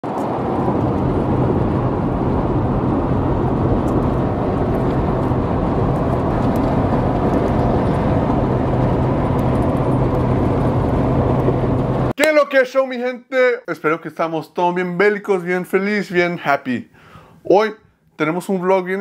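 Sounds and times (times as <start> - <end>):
low hum: 0.0 - 12.2
vehicle cabin road noise: 0.0 - 12.2.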